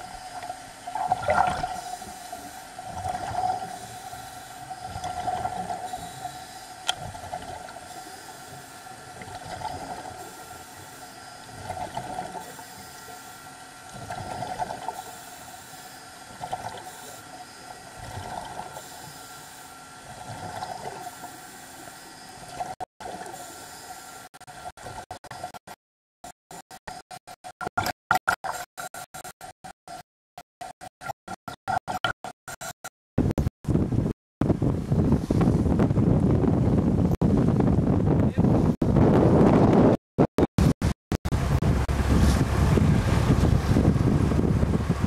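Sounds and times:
underwater propeller hum: 0:00.0 - 0:25.6, 0:41.3 - 0:45.0
diver breathing bubbles: 0:00.9 - 0:17.3.

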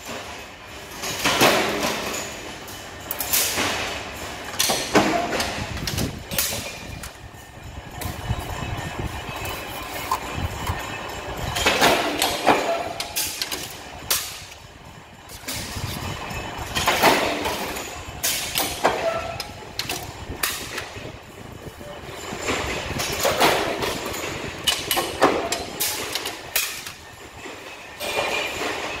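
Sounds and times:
power press clanking sheet metal: 0:00.0 - 0:29.0
low machine rumble: 0:05.5 - 0:12.2.

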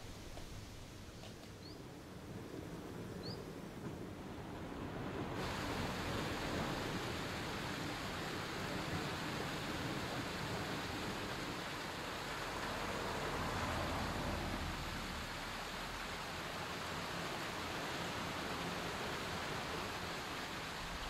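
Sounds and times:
water rushing: 0:04.2 - 0:21.0.

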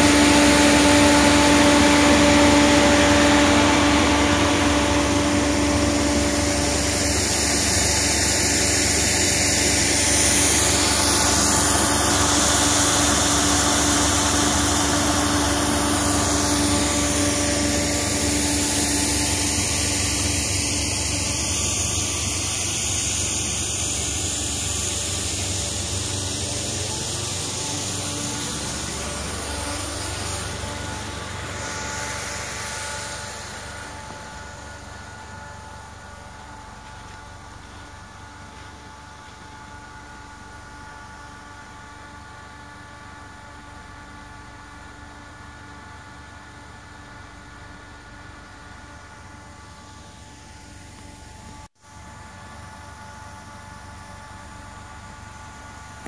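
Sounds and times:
snow gun air and water spray: 0:00.0 - 0:35.8
motor and fan hum: 0:00.0 - 0:56.0.

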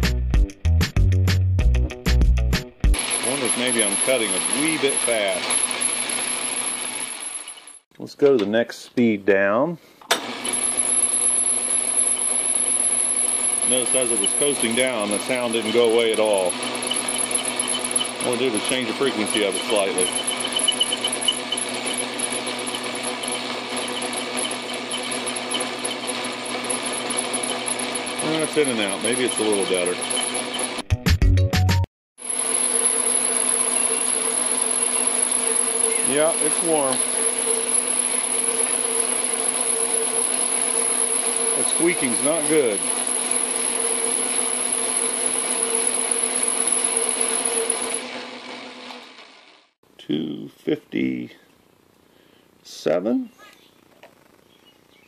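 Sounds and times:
metal lathe running: 0:03.0 - 0:07.8, 0:10.2 - 0:30.8, 0:32.2 - 0:49.8
steady squeaking: 0:13.2 - 0:30.8, 0:32.6 - 0:48.4
squeak: 0:14.0 - 0:14.6, 0:16.8 - 0:18.3, 0:19.1 - 0:26.1, 0:29.1 - 0:30.8, 0:33.5 - 0:36.4.

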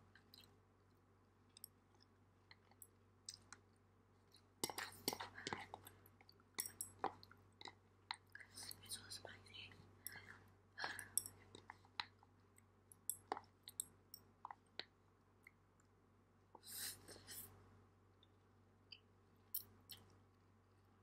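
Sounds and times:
chopsticks clicking and scraping: 0:04.6 - 0:06.0, 0:06.6 - 0:07.8
soft mouth clicks: 0:18.9 - 0:20.2.

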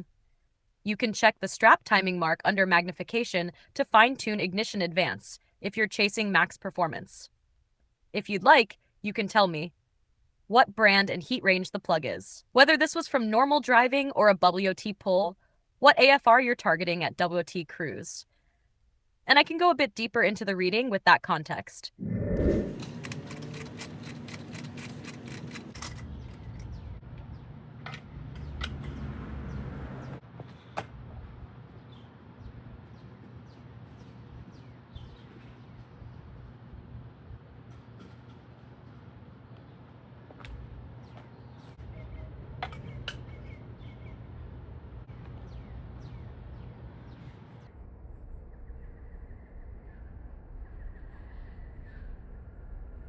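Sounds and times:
steady low rumble: 0:22.0 - 0:24.3, 0:41.8 - 0:53.0
ratchet clicking: 0:22.8 - 0:26.8
tool handling clicks: 0:22.8 - 0:26.8
low steady hum: 0:30.9 - 0:53.0
birds chirping: 0:31.4 - 0:36.8, 0:37.6 - 0:47.7.

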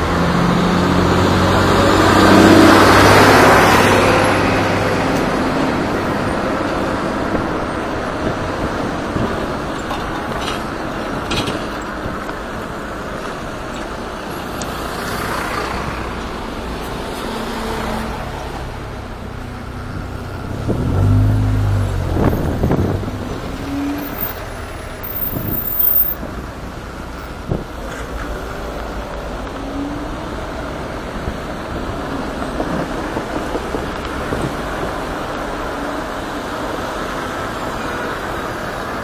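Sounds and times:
low vehicle rumble: 0:00.0 - 0:39.0
road and wind noise: 0:00.0 - 0:39.0.

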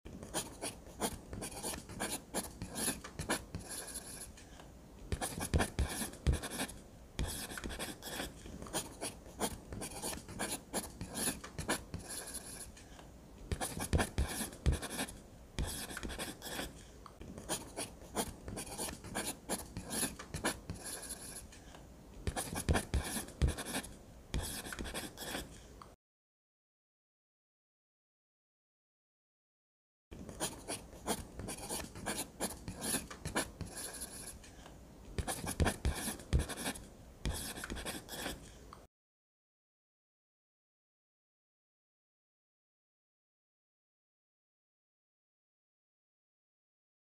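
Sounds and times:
pencil scratching on paper: 0:00.1 - 0:04.5, 0:05.1 - 0:12.8, 0:13.5 - 0:21.6, 0:22.3 - 0:25.6, 0:30.2 - 0:34.4, 0:35.2 - 0:38.5.

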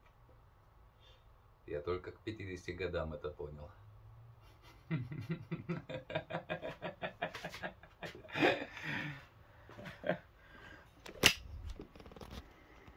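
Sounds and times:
man laughing: 0:04.5 - 0:10.3.

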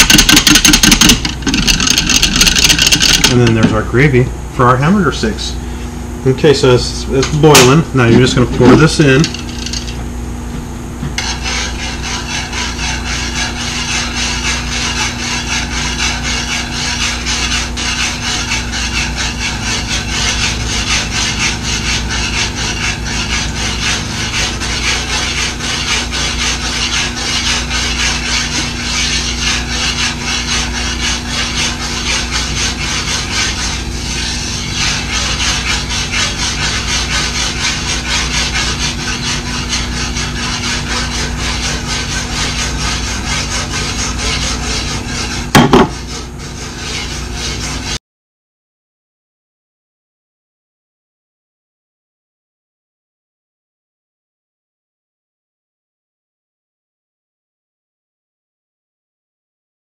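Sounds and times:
utensil scraping a skillet: 0:00.0 - 0:03.9, 0:06.5 - 0:10.0, 0:11.2 - 0:48.0.

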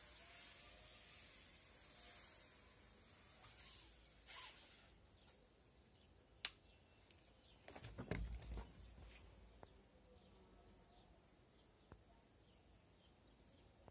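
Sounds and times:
crackling and rustling: 0:07.1 - 0:09.7.

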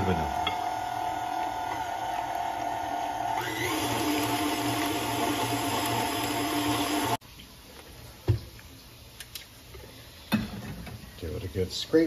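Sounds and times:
stand mixer running: 0:00.0 - 0:07.2.

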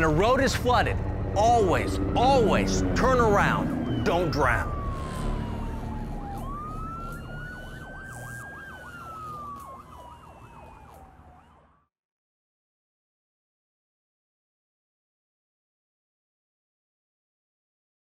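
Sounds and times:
low rumble: 0:00.0 - 0:08.5
wailing siren: 0:00.0 - 0:11.9
yelping siren: 0:00.0 - 0:11.9.

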